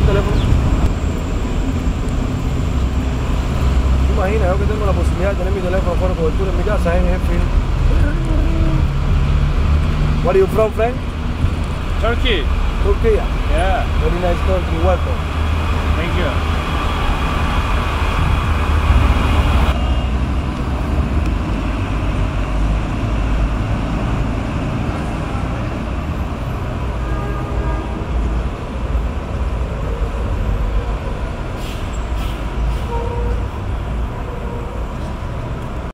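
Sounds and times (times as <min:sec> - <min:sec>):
car engine and road rumble: 0:00.0 - 0:35.9
old cars passing: 0:00.0 - 0:35.9.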